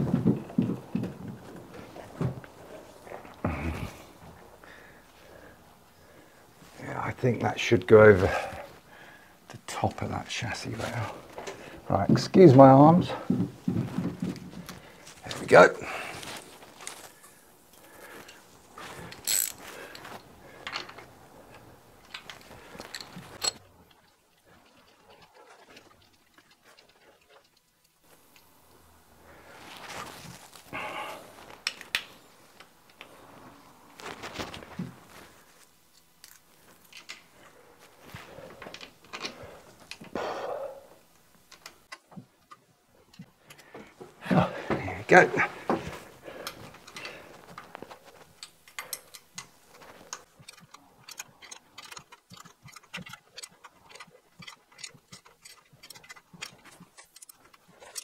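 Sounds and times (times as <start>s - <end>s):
wiring clicks and rustles: 9.5s - 28.6s, 31.4s - 40.2s, 41.0s - 58.0s.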